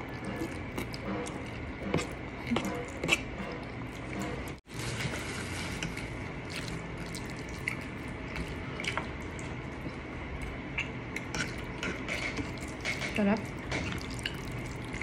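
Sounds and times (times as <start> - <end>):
people chewing food: 0.0 - 4.7, 5.8 - 15.0.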